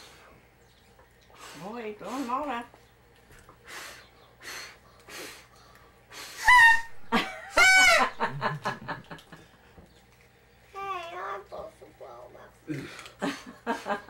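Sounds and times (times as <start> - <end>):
child puffing air: 3.6 - 6.8.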